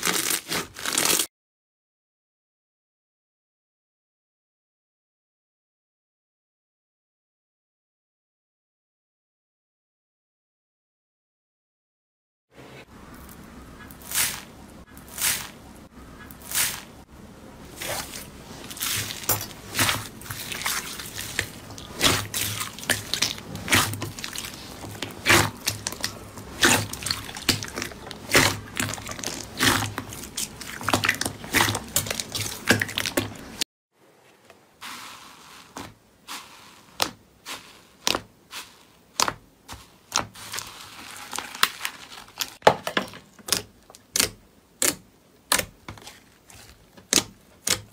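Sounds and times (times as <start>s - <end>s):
slime squelching and popping: 17.7s - 33.6s, 34.8s - 47.9s.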